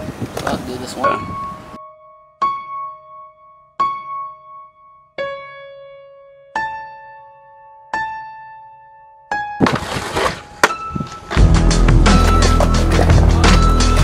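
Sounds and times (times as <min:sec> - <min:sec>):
slow piano notes: 0:01.0 - 0:09.6.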